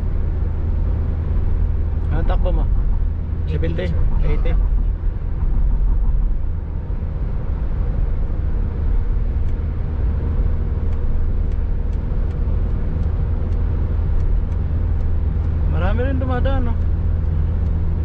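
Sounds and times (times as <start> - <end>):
car cabin road rumble: 0.0 - 18.0
faint light ticks: 10.8 - 15.6, 16.5 - 18.0.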